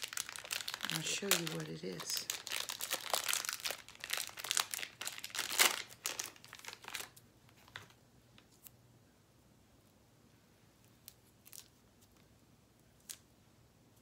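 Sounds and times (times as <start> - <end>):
packaging crinkling: 0.0 - 8.0.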